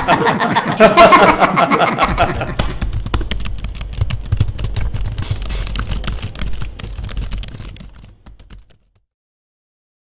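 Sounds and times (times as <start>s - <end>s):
fast typing on keyboard: 2.0s - 9.1s.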